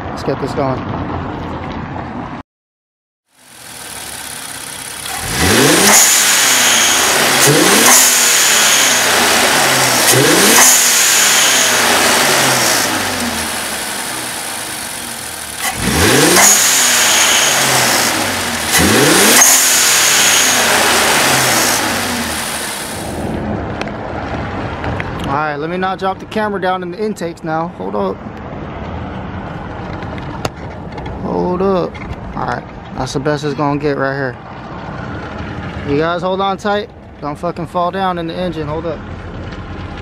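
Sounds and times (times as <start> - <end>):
car engine revving: 3.4 - 25.3
blow-off valve whoosh: 5.8 - 13.3, 15.6 - 23.3.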